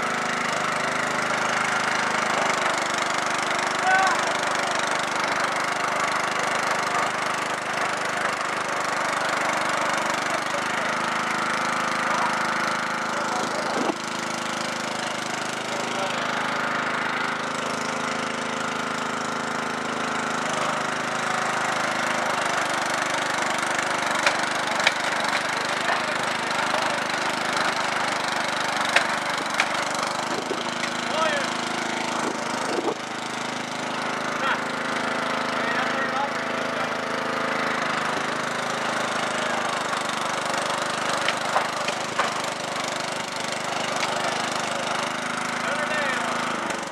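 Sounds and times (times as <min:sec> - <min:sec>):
lawn tractor engine idling: 0:00.0 - 0:46.9.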